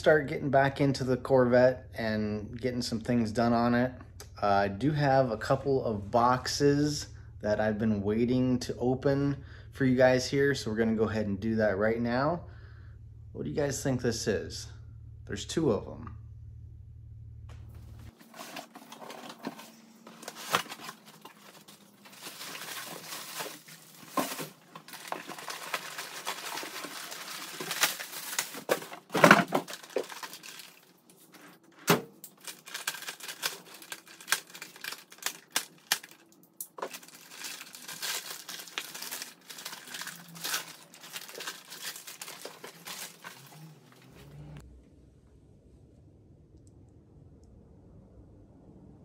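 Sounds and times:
packaging torn and crinkled: 18.1s - 31.4s, 32.2s - 44.0s.

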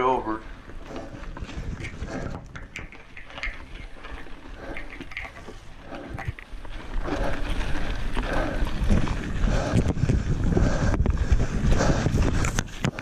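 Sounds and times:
bike clicks and knocks: 0.7s - 10.2s.

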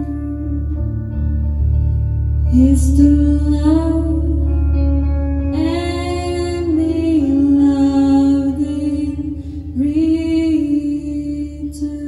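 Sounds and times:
woman singing: 0.0s - 1.3s, 2.4s - 12.0s
bass guitar: 0.0s - 12.0s
electric guitar: 0.0s - 12.0s.

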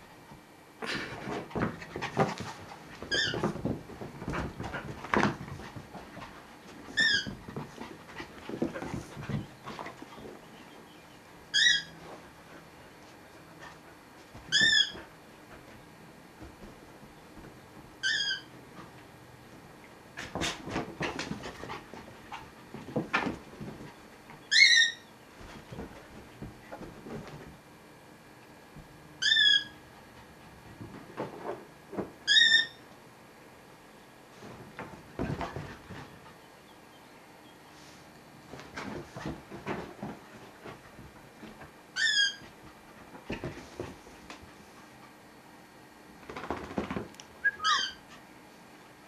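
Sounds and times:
faint scuffling: 0.8s - 18.1s, 25.3s - 27.7s
dog squealing: 11.5s - 12.0s, 18.0s - 18.5s, 24.5s - 25.1s, 29.2s - 29.8s, 32.3s - 32.8s, 42.0s - 42.4s, 47.4s - 48.0s.

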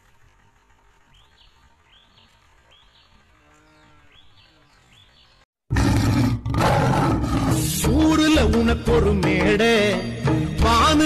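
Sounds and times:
loud animal roar: 5.7s - 7.8s.

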